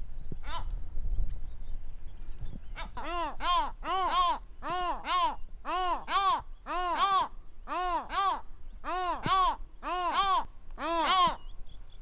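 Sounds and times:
gull double calls: 0.4s - 0.7s, 2.8s - 11.5s.

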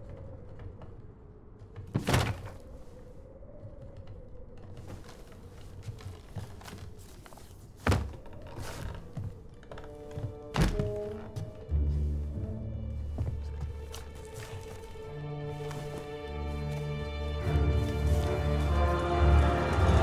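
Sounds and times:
dull thuds: 7.8s - 9.4s.

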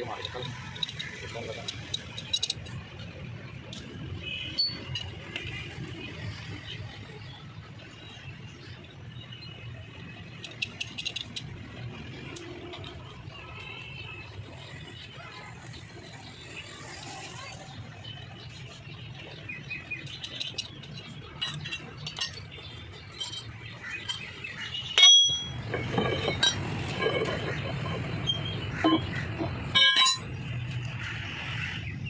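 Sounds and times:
socket wrench clinking on metal: 1.7s - 2.8s, 20.2s - 24.3s, 25.0s - 28.0s, 29.8s - 30.3s
ringing metal clank: 21.4s - 22.6s, 25.0s - 29.1s, 29.7s - 30.4s.

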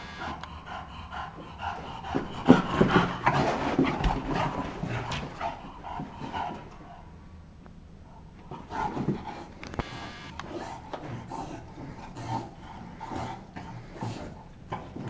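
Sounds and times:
dog making rough breathy noises: 0.0s - 7.2s, 10.4s - 15.0s.

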